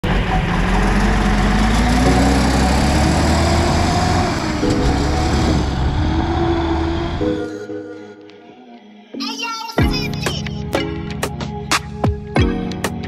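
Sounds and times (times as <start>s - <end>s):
diesel truck engine running: 0.0s - 7.4s.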